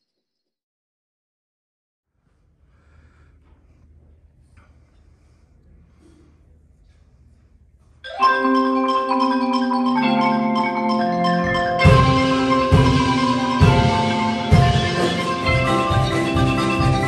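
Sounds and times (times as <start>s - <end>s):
mallet percussion ensemble: 8.1s - 17.0s
low drum strokes: 11.8s - 17.0s.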